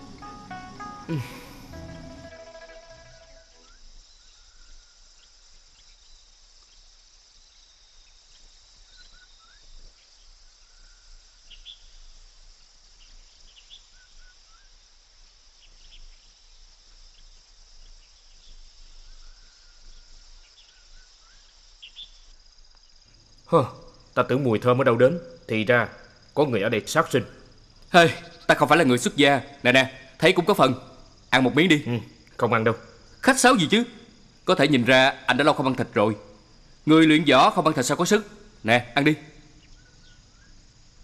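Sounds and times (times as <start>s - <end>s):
high chirps: 0.0s - 3.8s
insects droning: 0.0s - 41.0s.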